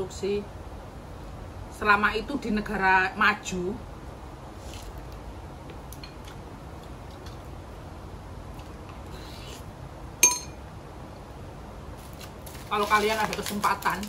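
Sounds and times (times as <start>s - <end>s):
quiet eating sounds: 4.5s - 9.8s.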